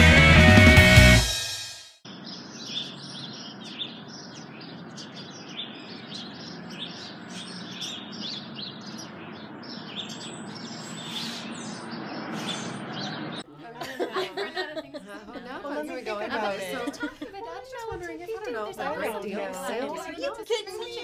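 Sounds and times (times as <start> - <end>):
birds chirping: 2.1 - 13.5.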